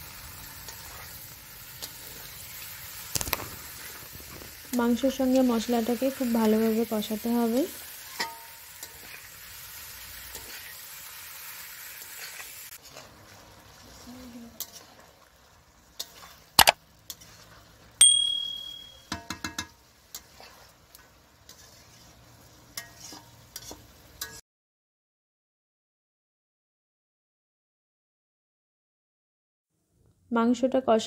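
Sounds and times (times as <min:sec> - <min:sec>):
chicken sizzling in a pan: 0:00.0 - 0:18.0, 0:19.0 - 0:24.4
metal spatula scraping a pan: 0:00.2 - 0:18.0, 0:19.1 - 0:24.4
pan clang ringing: 0:18.0 - 0:19.2.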